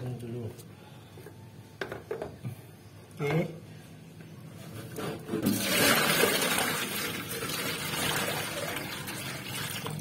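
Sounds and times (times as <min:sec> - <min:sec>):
water pouring and sloshing in a tub: 0:04.8 - 0:10.0.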